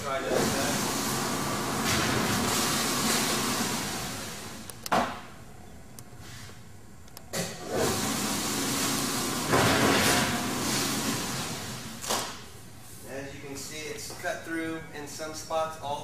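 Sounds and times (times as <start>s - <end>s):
die cutter machine humming: 0.0s - 4.9s, 7.4s - 12.4s.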